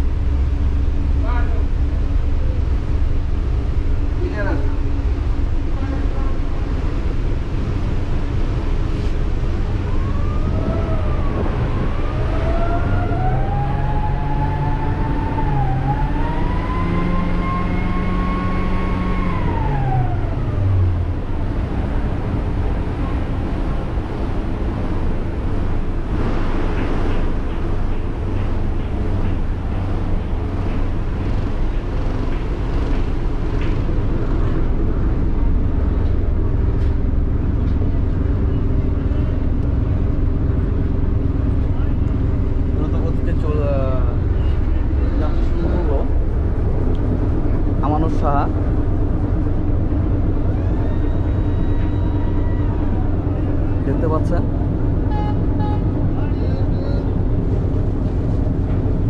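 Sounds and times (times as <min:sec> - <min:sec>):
ferry engines droning: 0:00.0 - 0:59.0
siren-like wail: 0:09.8 - 0:21.0, 0:50.4 - 0:53.6.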